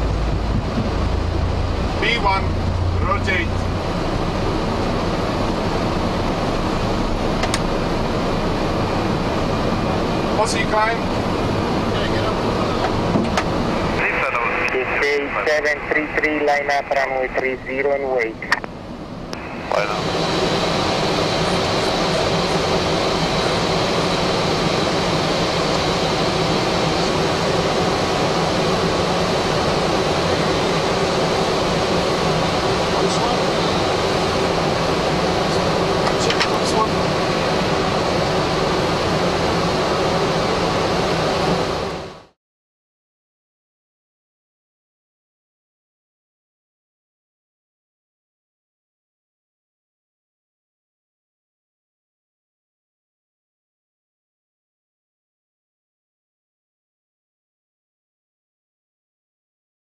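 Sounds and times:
jet engines at take-off thrust: 0.0s - 42.4s
low hum: 0.0s - 42.4s
faint high whine: 19.3s - 42.4s.

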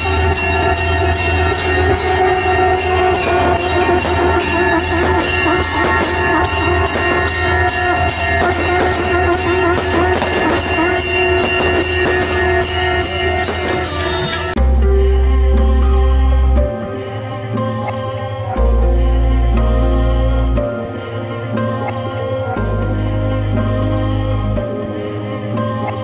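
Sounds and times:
instrumental music with jingling percussion: 0.0s - 15.4s.

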